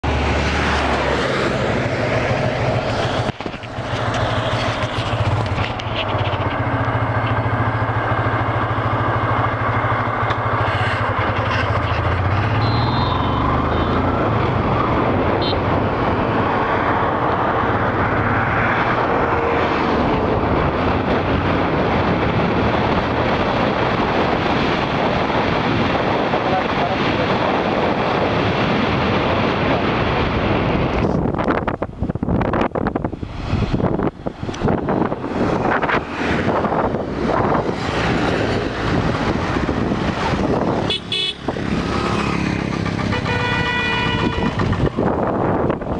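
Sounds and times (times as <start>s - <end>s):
wind and road noise: 0.0s - 45.9s
motorcycle engine running: 2.8s - 14.0s, 33.9s - 45.9s.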